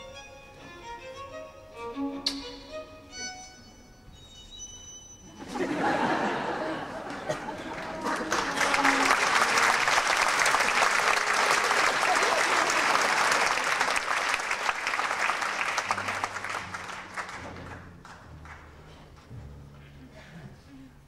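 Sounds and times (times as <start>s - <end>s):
low sustained music notes: 0.0s - 10.4s, 14.5s - 21.0s
audience applauding: 5.9s - 18.9s.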